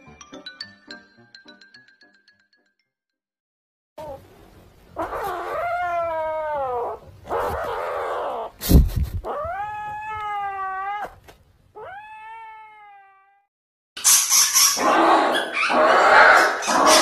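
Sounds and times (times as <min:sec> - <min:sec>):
kitten yowling and growling: 0:05.0 - 0:13.5, 0:14.8 - 0:17.0.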